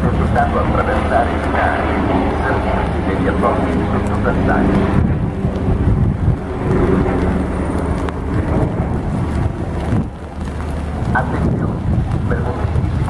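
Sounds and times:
train rumbling: 0.0 - 13.0
wind buffeting microphone: 0.0 - 13.0.

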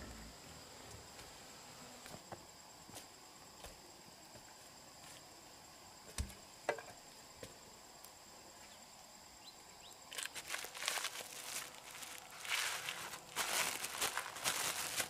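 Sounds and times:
insects buzzing high-pitched: 0.0 - 15.0
crunching footsteps: 10.1 - 15.0.

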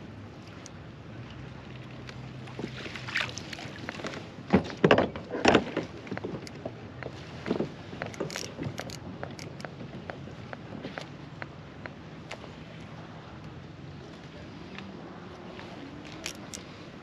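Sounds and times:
knocks and clatter on plastic kayak: 2.5 - 12.0.

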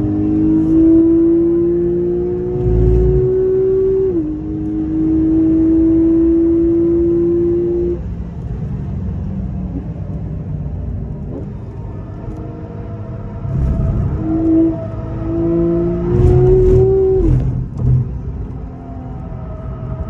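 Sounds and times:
car engine revving high: 0.0 - 8.0, 11.4 - 18.4
road and tyre noise: 0.0 - 20.0.

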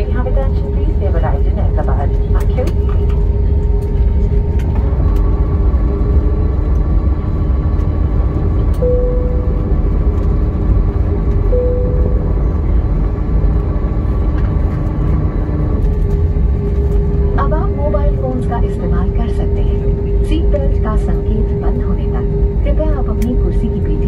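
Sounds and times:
jet engines taxiing rumble: 0.0 - 24.0
short steady tones: 8.8 - 10.1, 11.5 - 12.7.

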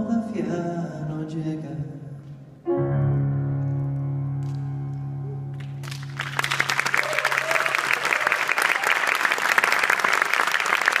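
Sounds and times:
piano chord: 2.4 - 6.9
audience applause: 5.6 - 11.0.

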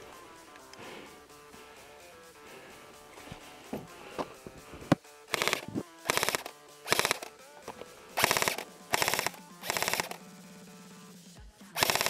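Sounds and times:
airsoft rifle full-auto bursts: 4.8 - 10.3, 11.8 - 12.0.

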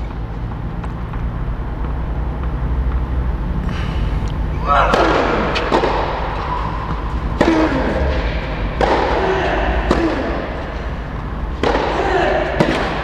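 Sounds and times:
racket hitting tennis ball: 0.0 - 13.0
ringing hall echo: 3.6 - 13.0.

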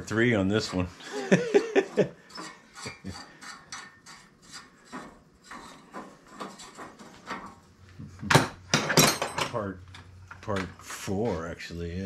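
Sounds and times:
metal scraping on metal: 0.0 - 7.6.

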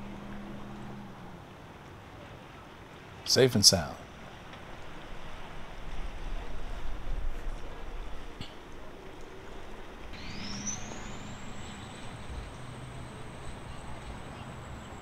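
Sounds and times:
motor humming with rising whine: 0.0 - 1.5, 10.1 - 15.0.

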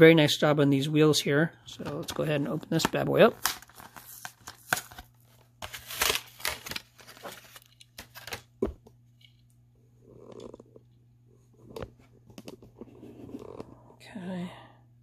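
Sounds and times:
plastic packaging tearing and crinkling: 3.2 - 8.5.

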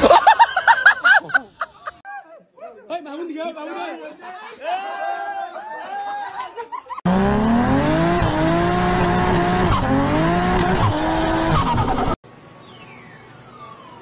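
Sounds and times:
racing car engine revving: 7.1 - 12.2.

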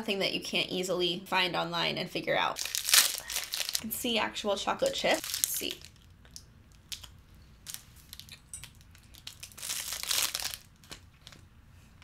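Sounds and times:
wrapper crinkling: 2.6 - 3.9, 4.8 - 11.4.

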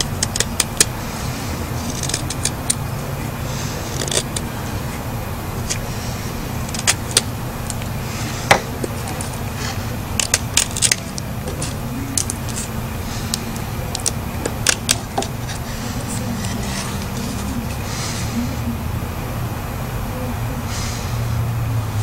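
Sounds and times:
knife scraping wooden stick: 0.0 - 2.9, 3.5 - 5.0, 5.6 - 17.9
low background rumble: 0.0 - 22.0.

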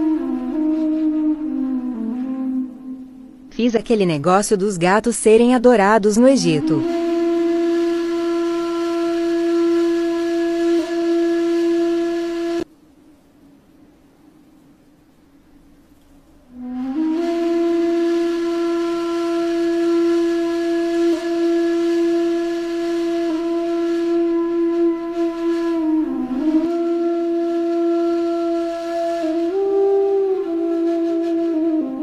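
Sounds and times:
breathy wind instrument melody: 0.0 - 3.5, 6.6 - 12.7, 16.5 - 32.0.

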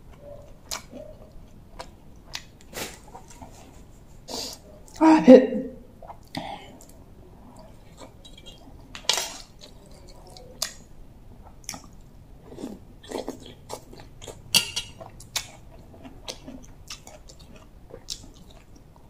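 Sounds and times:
mouth clicks and smacks: 0.1 - 3.8, 6.0 - 10.8.

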